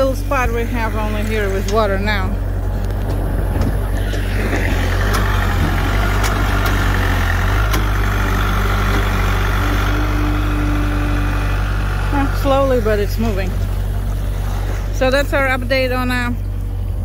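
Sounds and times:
loader digging into wet mud: 0:00.0 - 0:15.2
tractor diesel engine under load: 0:00.0 - 0:17.0.

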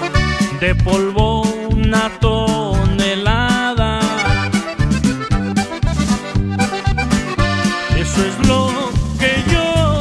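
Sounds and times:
accordion melody: 0:00.0 - 0:10.0
bass and drum beat: 0:00.0 - 0:10.0.

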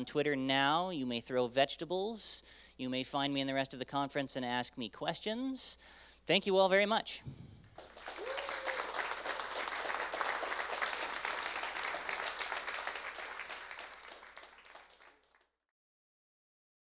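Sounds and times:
audience applauding: 0:07.7 - 0:15.5.

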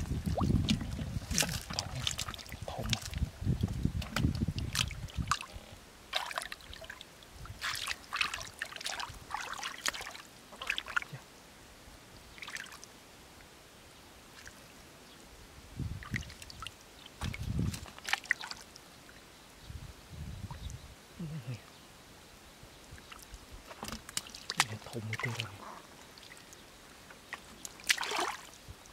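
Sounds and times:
splashing in shallow muddy water: 0:00.0 - 0:11.3, 0:12.3 - 0:13.0, 0:14.2 - 0:14.7, 0:15.9 - 0:19.3, 0:22.9 - 0:28.9.

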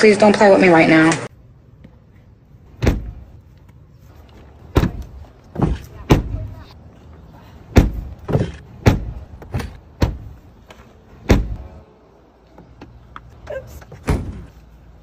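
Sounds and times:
car door thuds and clunks: 0:02.8 - 0:03.3, 0:04.7 - 0:06.5, 0:07.7 - 0:10.4, 0:11.2 - 0:11.7.

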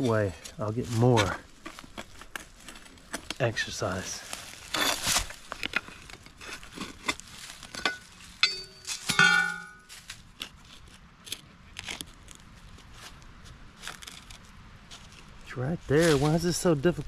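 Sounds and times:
shovel digging in soil: 0:04.5 - 0:12.4
shovel blade clanging: 0:07.7 - 0:09.9.

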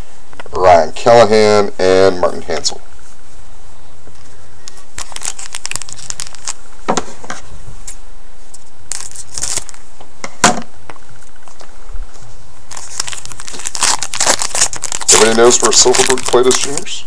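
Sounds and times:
card pack wrapper crinkling: 0:04.6 - 0:06.6, 0:08.6 - 0:09.8, 0:12.7 - 0:17.0
scissors cutting wrapper: 0:05.0 - 0:06.6, 0:08.9 - 0:09.8, 0:12.7 - 0:16.9.

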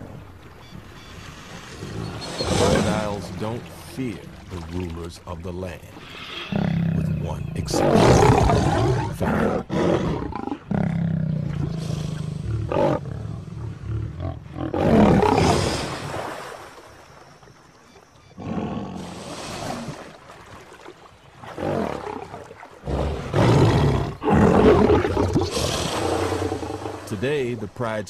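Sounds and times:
water splashing: 0:00.0 - 0:09.4, 0:11.2 - 0:18.3, 0:18.9 - 0:28.0
lion growling and snarling: 0:01.7 - 0:03.3, 0:06.4 - 0:15.9, 0:18.4 - 0:20.0, 0:21.4 - 0:27.1.

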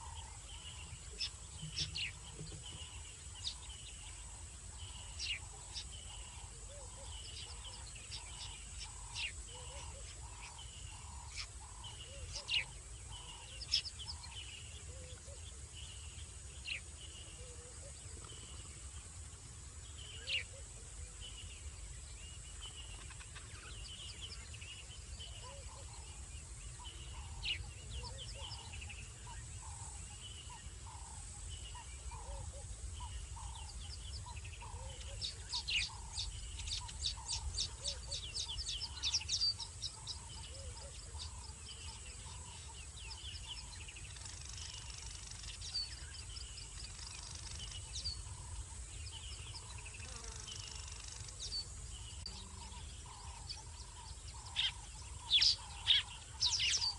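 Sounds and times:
steady high insect tone: 0:00.0 - 0:56.9
frogs calling: 0:25.2 - 0:56.9.

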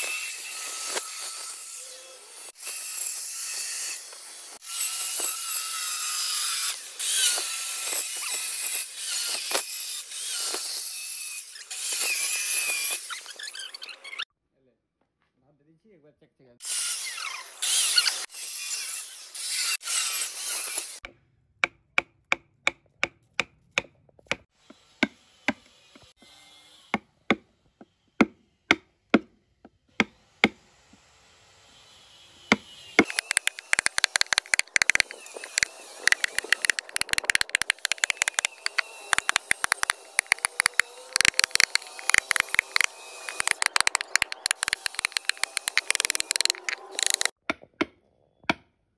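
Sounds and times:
power tool cutting wood: 0:00.0 - 0:13.2, 0:32.4 - 0:47.4
chisel tapping into wood: 0:33.0 - 0:47.3
wood crackling as chips break: 0:33.1 - 0:47.3.

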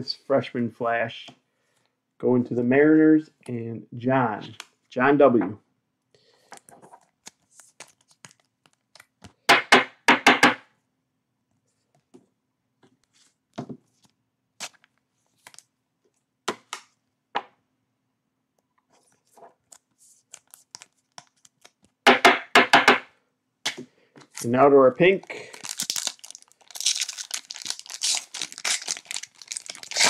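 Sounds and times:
wrappers tearing and crinkling: 0:25.2 - 0:30.0.

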